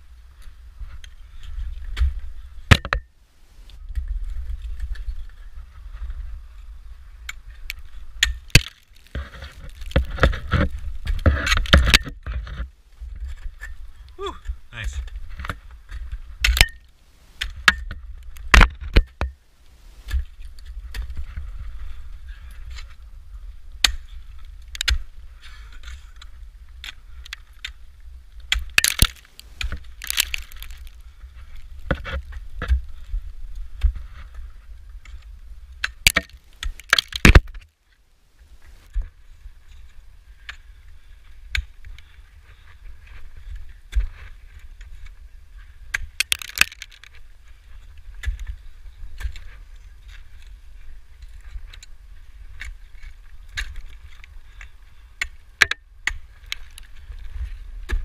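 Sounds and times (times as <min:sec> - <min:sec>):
ice axes striking ice: 0:01.9 - 0:03.1, 0:07.7 - 0:12.3, 0:14.4 - 0:19.4, 0:23.8 - 0:27.8, 0:28.4 - 0:32.8, 0:35.8 - 0:37.6, 0:45.9 - 0:48.5.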